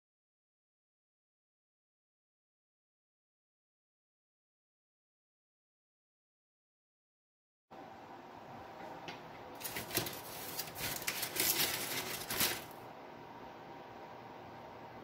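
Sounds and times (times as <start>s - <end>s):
steady background hum: 7.7s - 15.0s
plate handling rustles and clicks: 9.6s - 12.7s.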